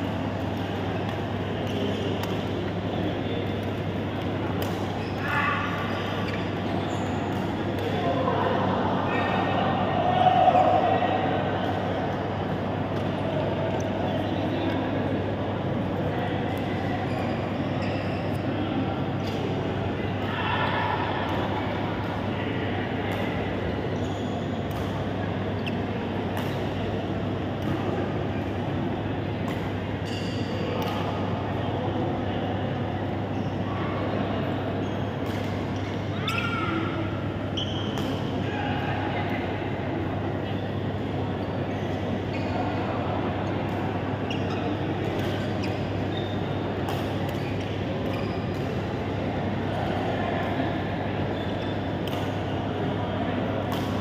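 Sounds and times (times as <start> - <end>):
sports hall hum and chatter: 0.0 - 54.0
racket hitting shuttlecock: 53.7 - 54.0.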